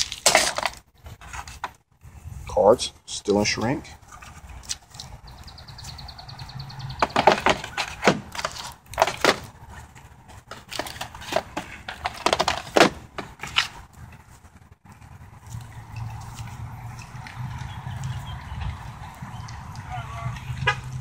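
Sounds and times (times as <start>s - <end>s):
plastic case clicking and knocking: 7.0s - 9.5s, 10.5s - 13.3s.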